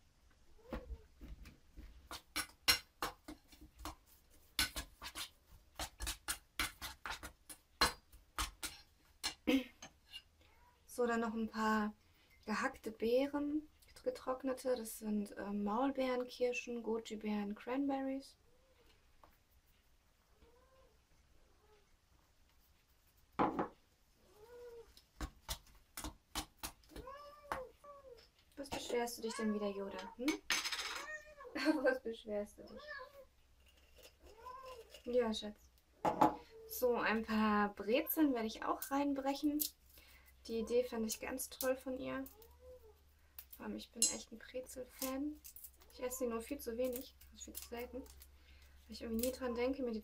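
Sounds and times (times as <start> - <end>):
utensil scraping metal bowl: 4.5 - 7.4, 33.6 - 35.2
cat meowing: 26.9 - 28.2, 29.2 - 30.2, 30.9 - 31.6, 32.8 - 33.3.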